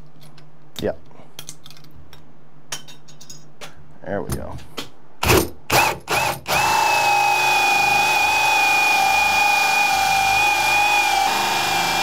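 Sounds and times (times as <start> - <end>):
cordless drill whining under load: 5.2 - 12.0.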